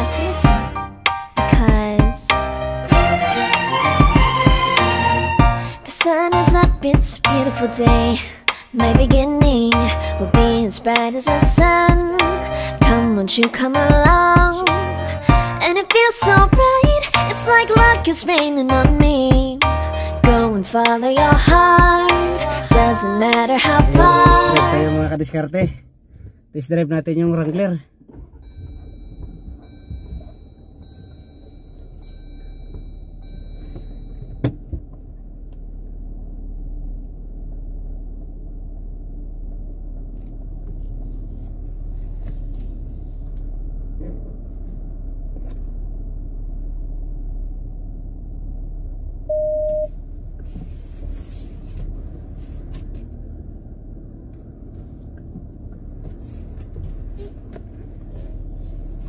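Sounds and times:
car engine rumble: 0.0s - 59.0s
short beep: 28.3s - 34.4s, 49.3s - 49.9s.

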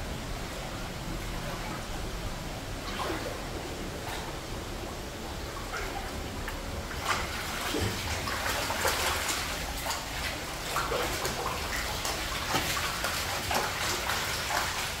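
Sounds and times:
floodwater splashing on tiles: 5.6s - 15.0s
wading footsteps: 5.6s - 15.0s.

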